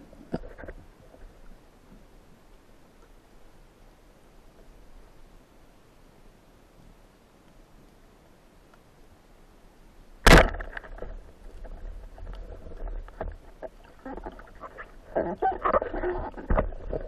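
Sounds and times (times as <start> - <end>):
speargun firing underwater: 10.2 - 11.0.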